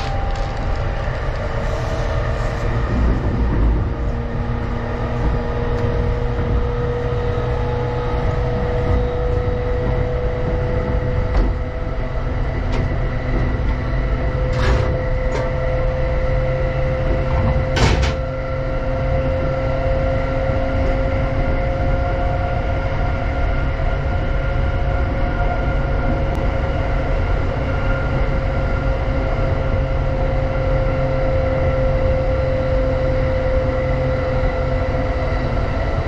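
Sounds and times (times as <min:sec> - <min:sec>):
train motor whine rising: 0:00.0 - 0:36.0
train wheels rumbling on rails: 0:00.0 - 0:36.0.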